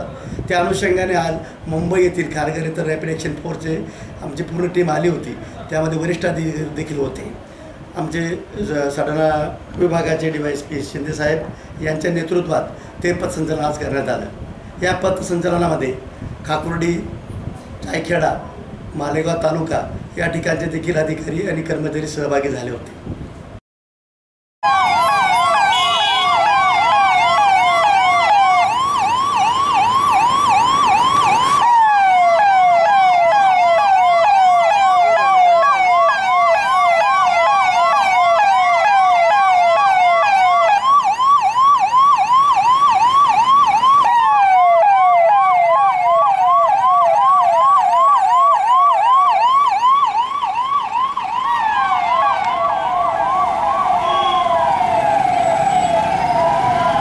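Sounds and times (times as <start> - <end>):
police siren yelp and wail: 24.6 - 57.0.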